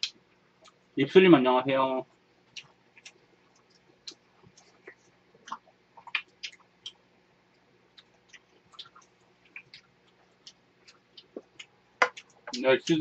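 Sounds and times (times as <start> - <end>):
chewing clicks: 2.5 - 7.0, 7.9 - 13.0.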